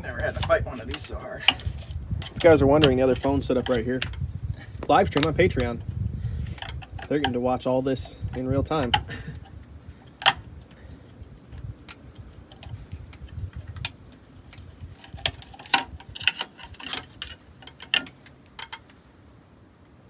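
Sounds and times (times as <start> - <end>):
metal bolts being handled: 0.1 - 4.2, 14.5 - 18.9
wrench clicking on metal bolts: 15.2 - 18.9.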